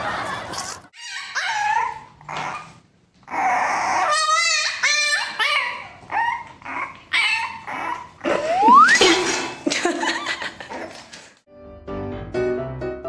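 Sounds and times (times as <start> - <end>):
puppy whining and yelping: 1.0 - 9.2.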